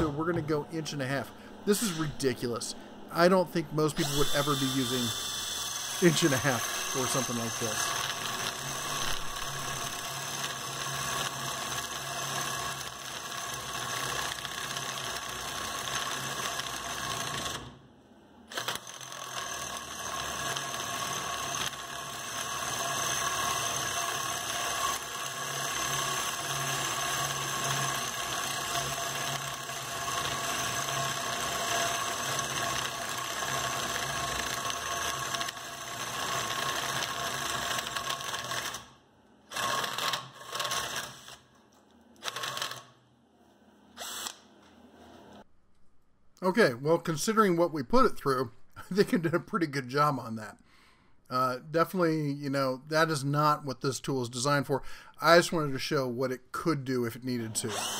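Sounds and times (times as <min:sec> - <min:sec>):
cordless drill boring through wood: 0:04.0 - 0:17.7, 0:18.5 - 0:38.9, 0:39.5 - 0:41.4, 0:42.2 - 0:42.8, 0:44.0 - 0:44.4, 0:57.6 - 0:57.9.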